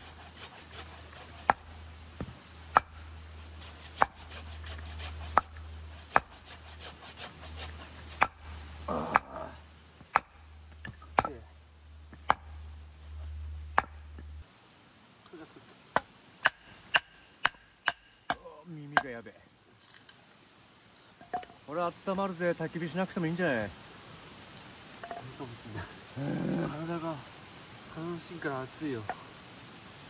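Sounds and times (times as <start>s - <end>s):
hand saw cutting wood: 0.0s - 1.8s, 2.7s - 8.5s.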